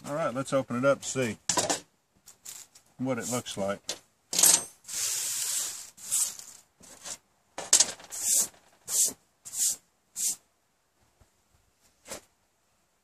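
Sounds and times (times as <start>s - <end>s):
hand brushing a table: 8.1s - 10.4s.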